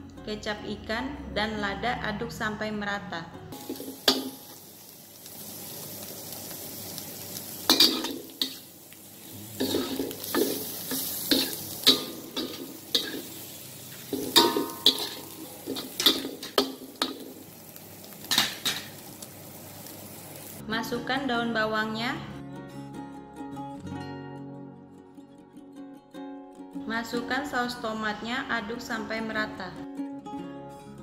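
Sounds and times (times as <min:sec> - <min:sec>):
food sizzling: 0:03.6 - 0:20.6
metal spatula scraping wok: 0:07.6 - 0:17.4, 0:18.3 - 0:19.0.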